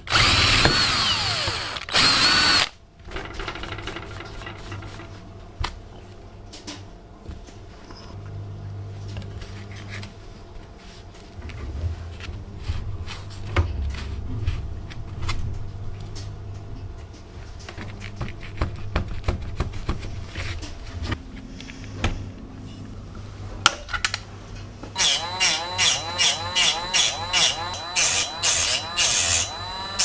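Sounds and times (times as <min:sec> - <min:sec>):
rotary tool cutting wire: 0:00.0 - 0:02.7, 0:25.0 - 0:30.0.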